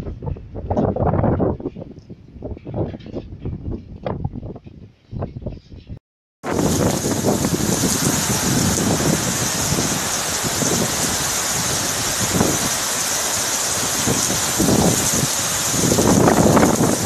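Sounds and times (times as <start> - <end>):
wind gusts buffeting microphone: 0.0 - 17.0
heavy rain hissing on street: 6.4 - 17.0.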